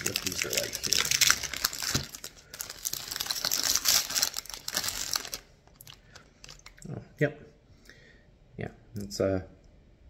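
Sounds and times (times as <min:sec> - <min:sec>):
snack wrapper crinkling and tearing: 0:00.0 - 0:06.9.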